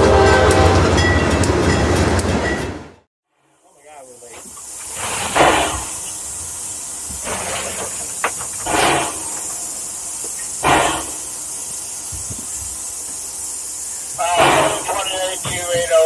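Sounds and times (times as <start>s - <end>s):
steam hissing: 3.6s - 16.0s.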